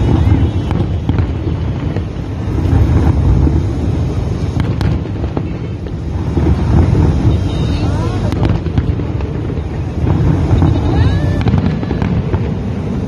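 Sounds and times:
distant fireworks booms: 0:00.0 - 0:13.0
sharp fireworks cracks: 0:00.0 - 0:13.0.

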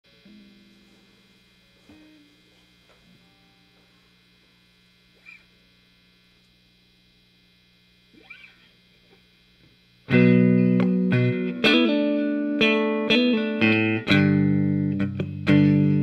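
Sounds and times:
amplifier mains hum and buzz: 0:00.0 - 0:16.0
faint guitar touches: 0:00.1 - 0:04.5.

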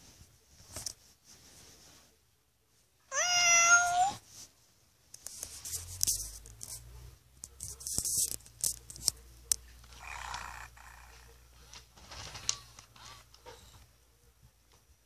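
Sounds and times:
electronic toy meow: 0:03.1 - 0:04.2
fur rustling against microphone: 0:03.9 - 0:07.0.

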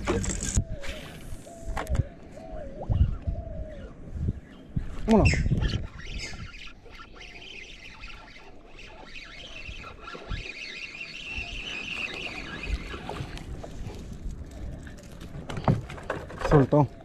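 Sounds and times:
fishing reel being cranked: 0:05.8 - 0:13.7.

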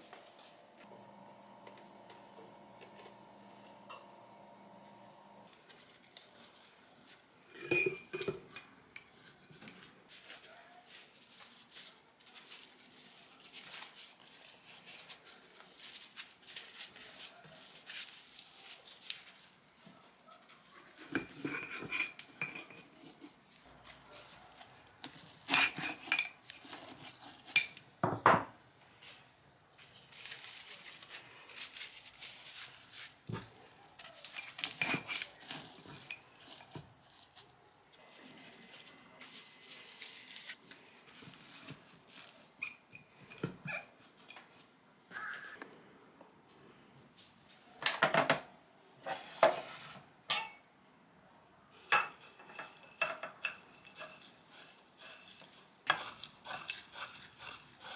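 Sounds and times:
glass jar clinking: 0:03.9 - 0:04.2, 0:07.6 - 0:08.4, 0:50.3 - 0:50.7, 0:51.9 - 0:54.3
leaves rustling: 0:28.9 - 0:42.5.

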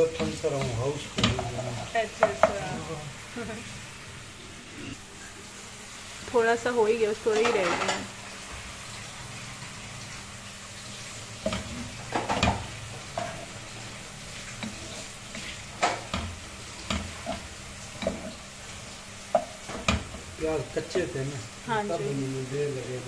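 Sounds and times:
wooden spatula scraping a pot: 0:00.0 - 0:03.0, 0:10.8 - 0:21.0
onions sizzling in oil: 0:00.0 - 0:23.0.

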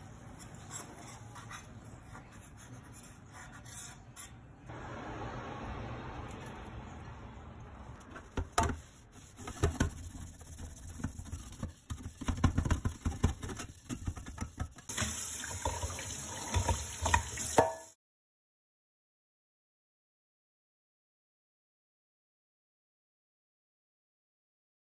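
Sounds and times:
pan scrubbing: 0:07.8 - 0:17.8
pan knocking against sink: 0:08.2 - 0:10.1, 0:11.9 - 0:15.0, 0:16.4 - 0:17.9
running water: 0:14.9 - 0:17.9.

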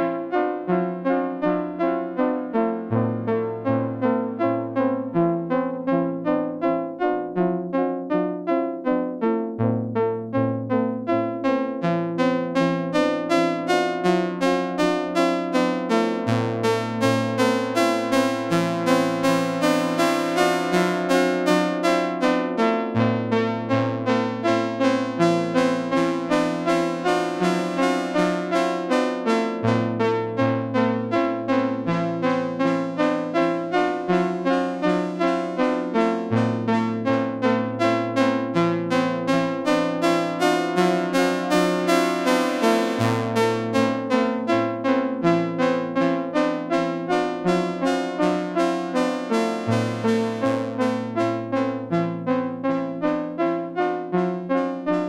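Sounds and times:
synthesizer chords and bass: 0:08.8 - 0:55.0
held low synth chords: 0:49.0 - 0:54.3.

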